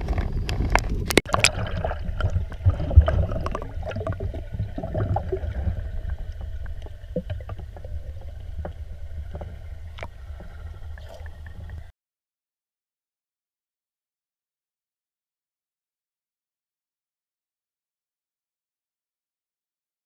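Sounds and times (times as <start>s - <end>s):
muffled underwater rumble: 0.0s - 11.9s.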